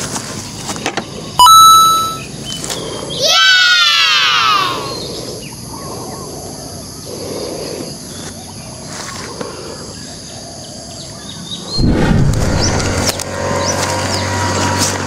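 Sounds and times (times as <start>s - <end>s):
bird chirps: 1.4s - 3.2s
insects droning: 2.2s - 14.6s
noisy rumble: 11.7s - 13.6s.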